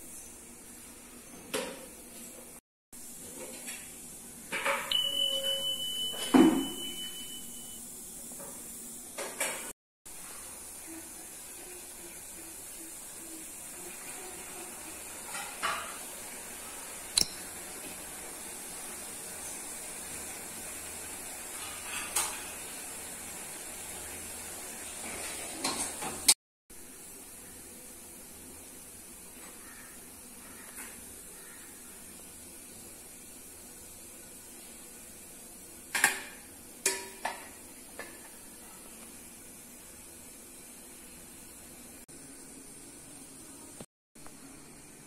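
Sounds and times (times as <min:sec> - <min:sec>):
high-pitched beep: 0:04.9 - 0:07.8.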